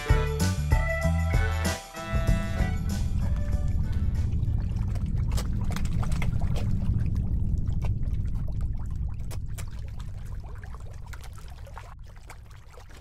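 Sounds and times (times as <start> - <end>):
steady low rumble: 2.1 - 12.3
water splashing against boat hull: 3.2 - 13.0.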